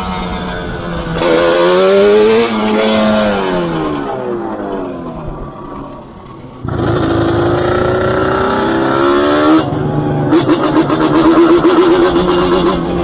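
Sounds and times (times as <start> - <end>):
two-stroke engine revving: 6.6 - 13.0.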